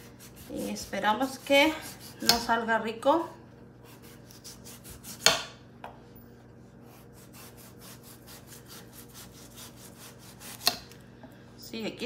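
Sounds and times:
knife rasping pumpkin rind: 0.0 - 2.5, 3.8 - 5.4, 6.8 - 11.0.

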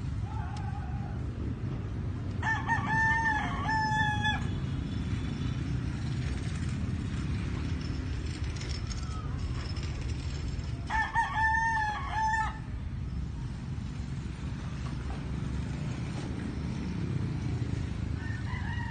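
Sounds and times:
rooster crowing: 2.4 - 4.6, 10.9 - 12.7, 18.1 - 18.9.

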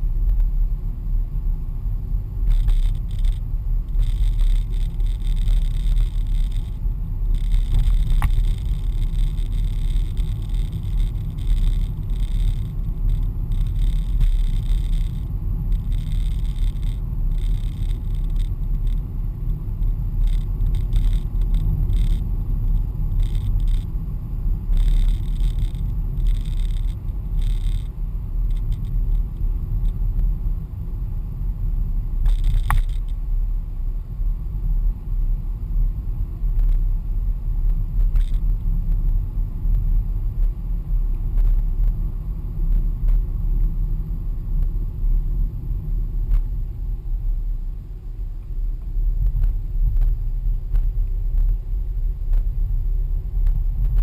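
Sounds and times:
car road and engine rumble: 0.0 - 54.0
light rattles: 32.2 - 33.2.

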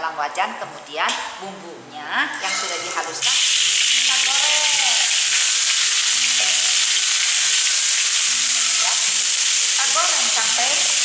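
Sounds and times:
metal spatula stirring in wok: 2.4 - 3.2
paste sizzling in oil: 2.4 - 11.0.

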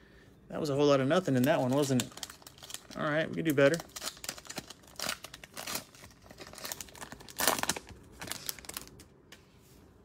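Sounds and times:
foil wrapper tearing and crinkling: 1.2 - 9.1.

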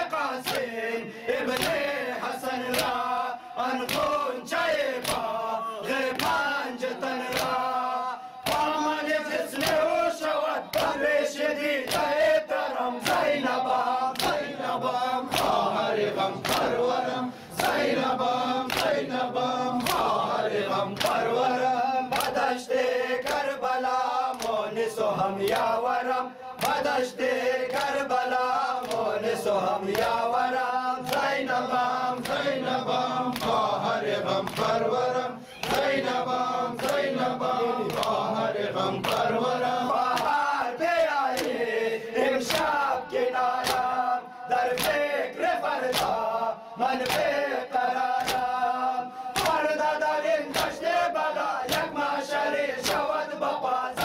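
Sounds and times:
crowd of men chanting: 0.0 - 54.0
hands slapping chests: 0.3 - 0.8, 1.4 - 2.0, 2.6 - 4.2, 4.9 - 6.6, 7.2 - 7.8, 8.4 - 9.9, 10.6 - 11.1, 11.8 - 12.3, 13.0 - 21.5, 22.1 - 22.5, 23.2 - 23.6, 24.2 - 24.8, 25.5 - 25.8, 26.6 - 28.1, 28.8 - 30.3, 31.0 - 40.4, 41.2 - 41.6, 42.4 - 42.8, 43.5 - 44.0, 44.6 - 45.1, 45.8 - 47.4, 48.0 - 48.6, 49.3 - 49.7, 50.5 - 50.8, 51.6 - 53.2.

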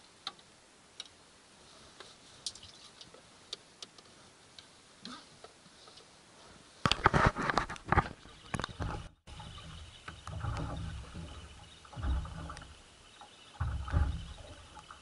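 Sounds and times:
faint water hiss: 0.0 - 6.9, 9.3 - 15.0.

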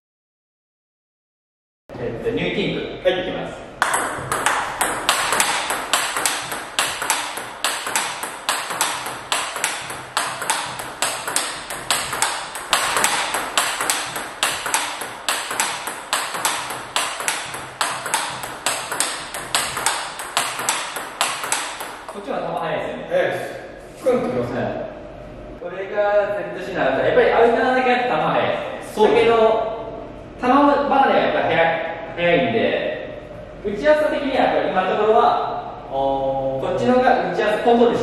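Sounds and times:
table tennis ball ticks: 3.8 - 22.2.

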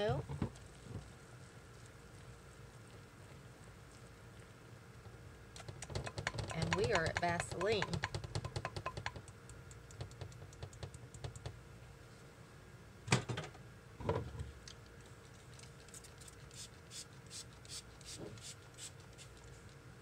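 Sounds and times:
whisk beating thick batter: 5.6 - 11.4
whisk knocking down: 6.1 - 8.2.

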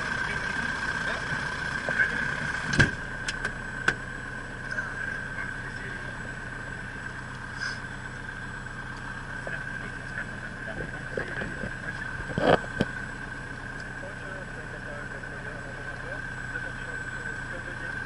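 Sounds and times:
aircraft engine running steadily: 0.0 - 18.0
constant high tone: 0.0 - 18.0.

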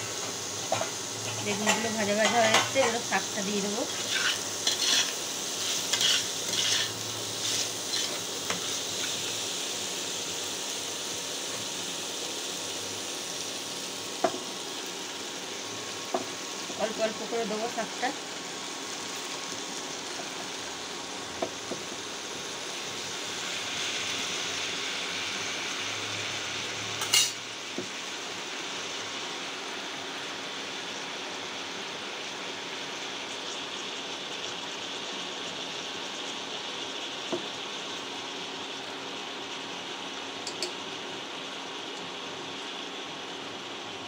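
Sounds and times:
vegetables sizzling in a pan: 0.0 - 44.0
utensils clinking on pan: 3.9 - 9.2, 27.0 - 27.5, 40.4 - 40.8.

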